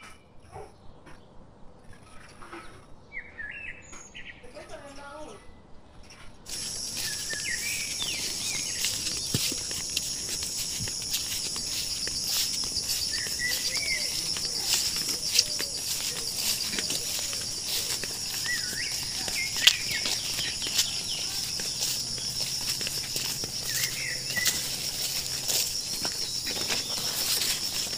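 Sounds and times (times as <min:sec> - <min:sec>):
footfalls and leaves brushing: 0:06.5 - 0:27.9
high-pitched insect chorus: 0:06.5 - 0:27.9.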